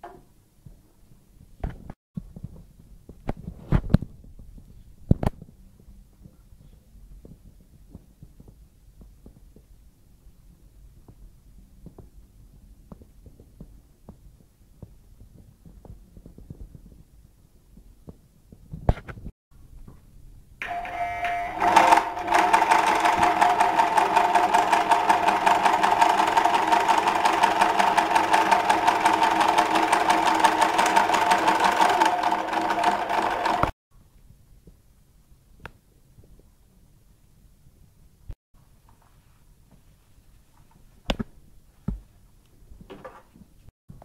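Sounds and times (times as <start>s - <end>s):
sewing machine stitching: 20.6s - 33.8s.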